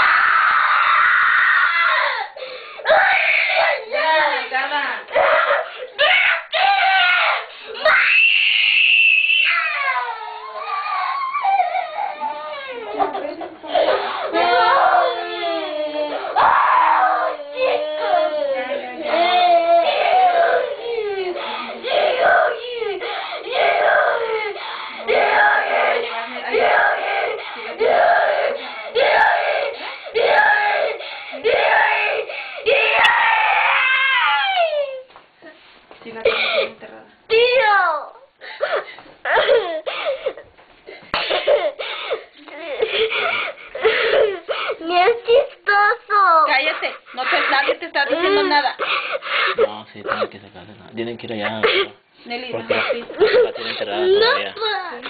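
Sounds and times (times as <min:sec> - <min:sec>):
boy screaming in pain: 0:00.0 - 0:04.4, 0:05.1 - 0:13.1, 0:13.8 - 0:35.1, 0:37.3 - 0:40.3, 0:52.8 - 0:55.0.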